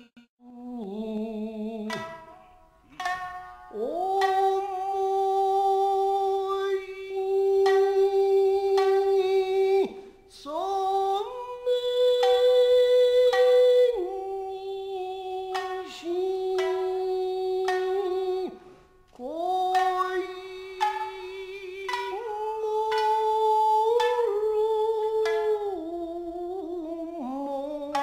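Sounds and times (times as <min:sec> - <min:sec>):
plucked string notes: 0:01.9 - 0:05.0, 0:15.4 - 0:18.6, 0:19.6 - 0:24.5
voice singing long sliding notes: 0:03.7 - 0:18.6, 0:19.2 - 0:28.0.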